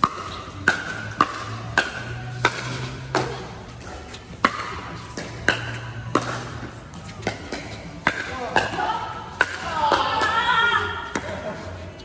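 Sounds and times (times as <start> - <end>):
paddles hitting plastic ball: 0.0 - 3.5, 4.4 - 11.4.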